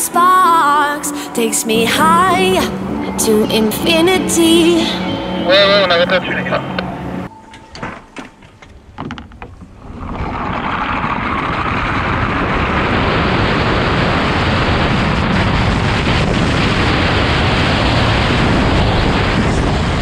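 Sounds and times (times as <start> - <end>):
wind rushing: 9.7 - 20.0.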